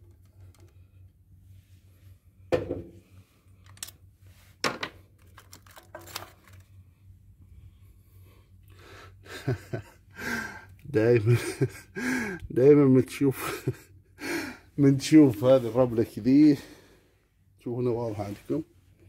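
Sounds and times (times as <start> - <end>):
rustling handling noise: 3.1 - 7.1, 17.9 - 19.0.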